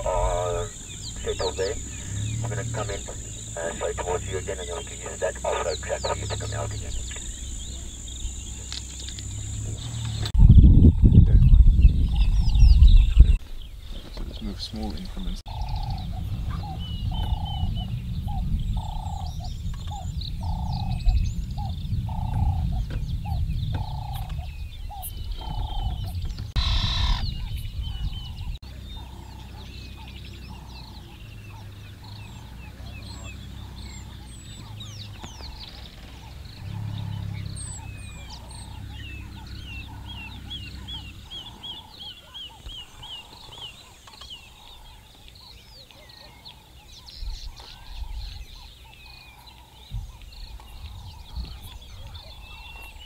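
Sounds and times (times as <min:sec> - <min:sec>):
low rumble: 0:00.0 - 0:13.8, 0:15.0 - 0:43.9
bird chirps and trills: 0:00.0 - 0:53.0.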